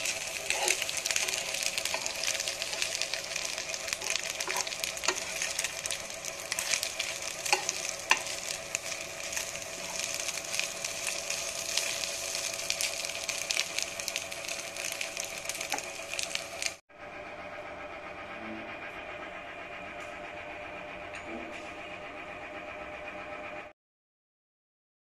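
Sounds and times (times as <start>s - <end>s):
spatula scraping frying pan: 0.0s - 13.8s
food sizzling: 0.0s - 16.8s
steady hum: 0.0s - 23.7s.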